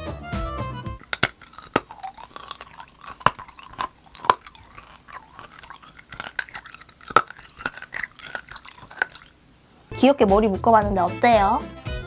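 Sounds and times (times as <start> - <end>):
chewing and crunching hard candy: 0.8 - 9.9.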